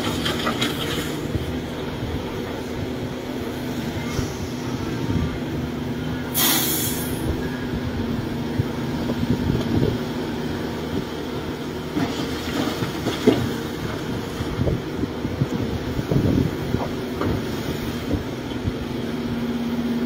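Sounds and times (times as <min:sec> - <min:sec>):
bucket knocking and scraping dirt: 0:00.0 - 0:01.2
excavator diesel engine droning: 0:00.0 - 0:20.0
short hydraulic hiss: 0:06.3 - 0:07.2.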